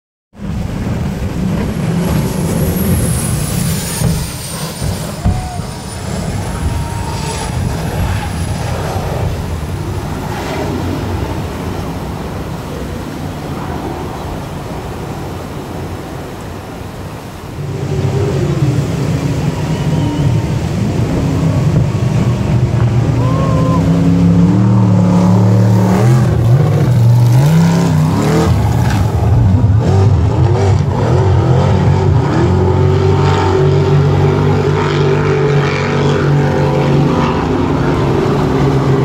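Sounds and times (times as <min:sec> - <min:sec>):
jet boat engine whine: 0:00.4 - 0:39.0
white water rushing: 0:00.4 - 0:39.0.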